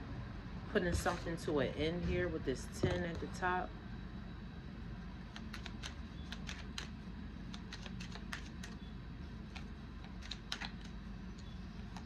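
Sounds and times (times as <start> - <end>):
cards being shuffled: 5.3 - 8.8.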